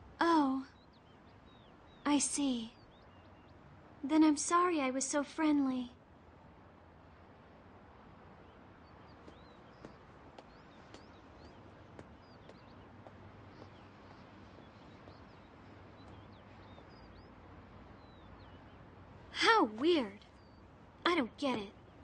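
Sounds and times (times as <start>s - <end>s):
steady low hiss: 0.0s - 22.0s
high bird chirps: 8.4s - 22.0s.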